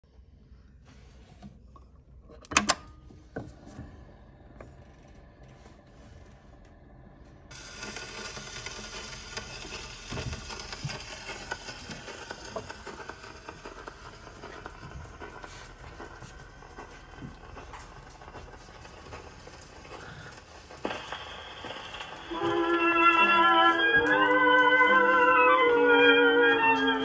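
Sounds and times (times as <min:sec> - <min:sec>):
record surface hiss and crackle: 0:04.8 - 0:23.2.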